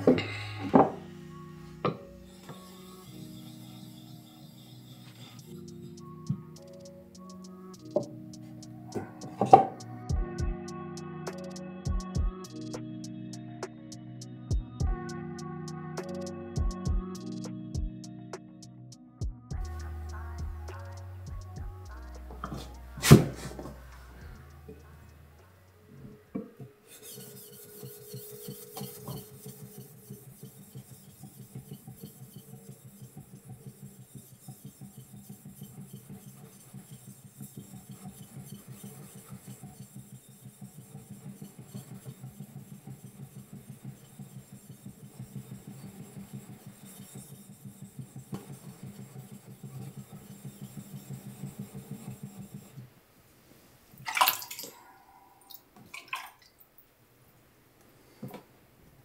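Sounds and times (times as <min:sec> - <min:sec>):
knife rasping on whetstone: 0:02.3 - 0:06.0, 0:26.9 - 0:52.8.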